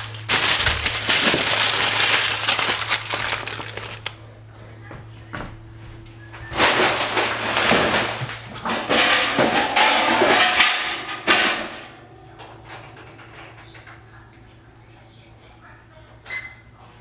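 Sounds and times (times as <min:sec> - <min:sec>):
loud rustling handling noise: 0:00.0 - 0:04.3
low steady hum: 0:00.0 - 0:17.0.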